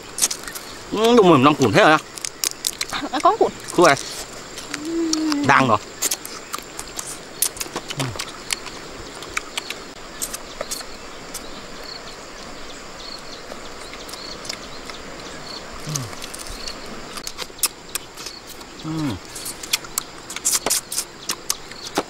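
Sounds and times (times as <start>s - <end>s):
high insect drone: 0.0s - 22.0s
crab shells cracking and crunching: 0.2s - 1.3s, 2.0s - 5.4s, 6.0s - 10.9s, 15.8s - 18.4s.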